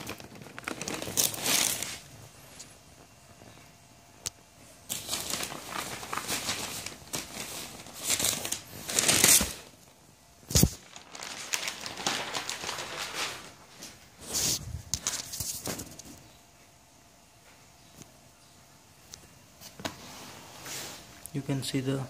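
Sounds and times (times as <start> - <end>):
rustling handling noise: 0.0 - 3.8, 4.6 - 16.7.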